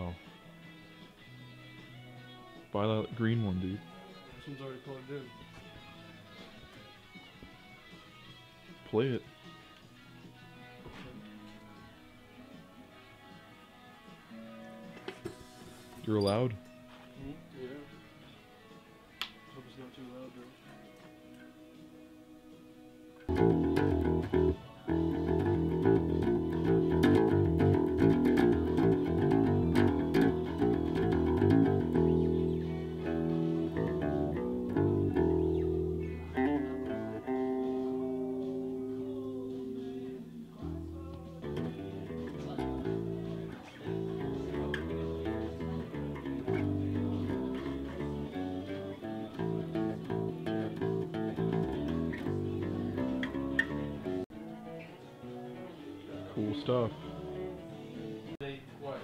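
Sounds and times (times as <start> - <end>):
electric bass guitar plucked notes: 23.2 - 54.2.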